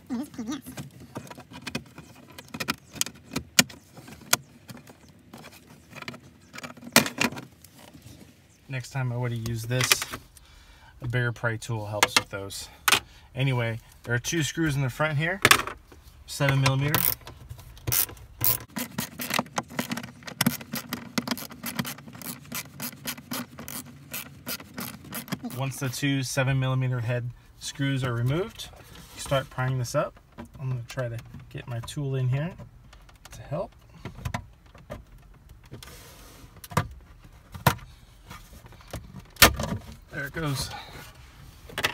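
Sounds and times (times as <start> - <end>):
hand tool clicking and scraping: 16.7 - 25.6.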